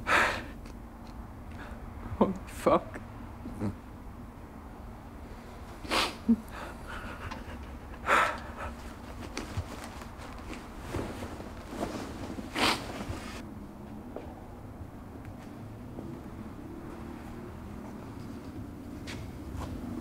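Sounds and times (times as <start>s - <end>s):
man breathing sharply and sniffing: 0.0s - 0.6s, 1.5s - 2.0s, 5.3s - 9.9s, 11.7s - 13.4s.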